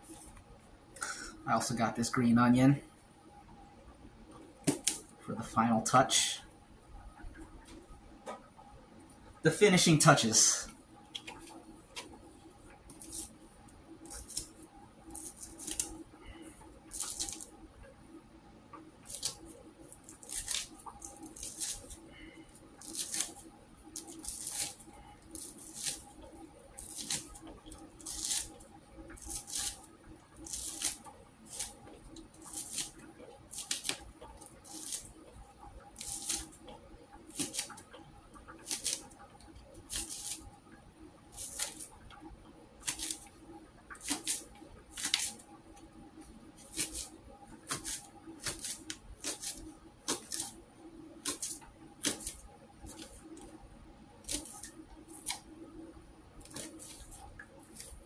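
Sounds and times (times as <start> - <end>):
faint steady hum: 0.0 - 58.0
knife slicing celery: 4.6 - 5.1, 12.9 - 13.4, 14.0 - 16.0, 16.9 - 17.5, 19.0 - 22.0, 22.8 - 28.6, 29.2 - 35.1, 35.9 - 36.6, 37.3 - 37.9, 38.5 - 39.2, 39.8 - 40.5, 41.3 - 42.0, 42.8 - 43.3, 43.9 - 45.4, 46.6 - 50.6, 51.2 - 53.5, 54.2 - 55.5, 56.4 - 58.0.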